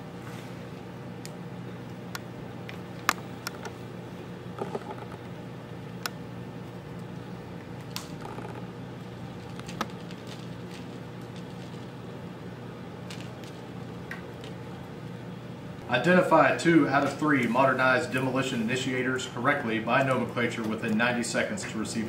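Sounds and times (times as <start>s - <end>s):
cord clicks and rustles: 9.3s - 12.0s, 13.0s - 14.6s.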